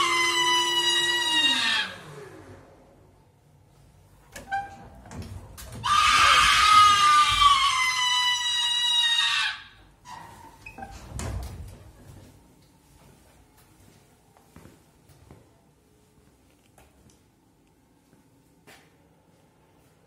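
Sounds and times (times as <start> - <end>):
long shrill scream: 0.0 - 2.3, 5.8 - 9.8.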